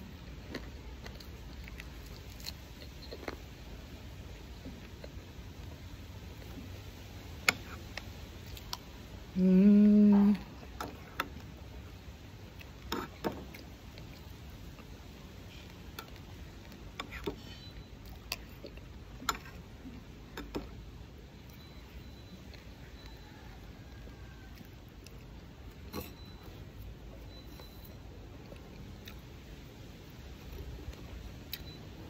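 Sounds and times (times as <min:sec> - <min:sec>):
chewing: 0:00.4 - 0:05.8, 0:12.5 - 0:20.7, 0:21.4 - 0:29.6
closed-mouth hum: 0:07.4 - 0:20.8.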